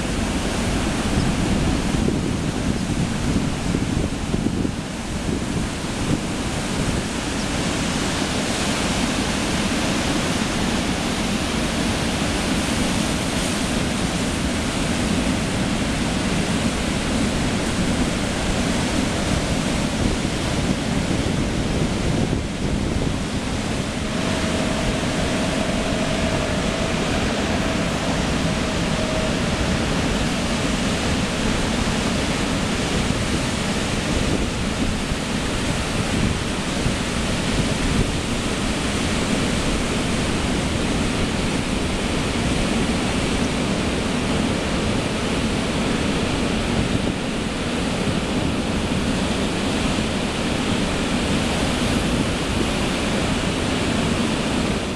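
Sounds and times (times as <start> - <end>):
ocean surf breaking: 0.0 - 54.9
wind buffeting microphone: 0.0 - 54.9.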